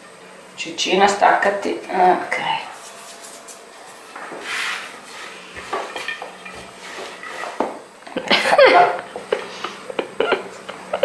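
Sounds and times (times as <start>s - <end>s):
rolling pin rolling over dough: 2.7s - 10.3s.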